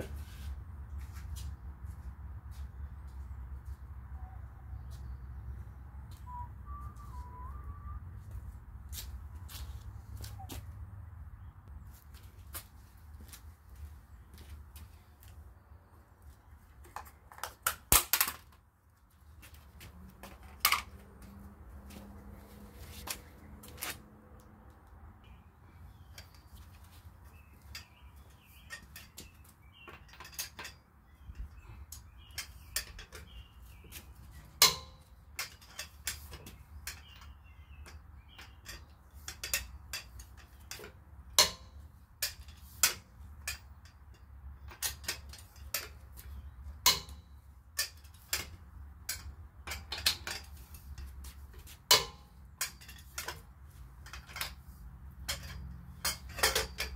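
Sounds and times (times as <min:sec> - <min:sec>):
metal socket clinking on lug nuts: 0:55.2 - 0:56.9.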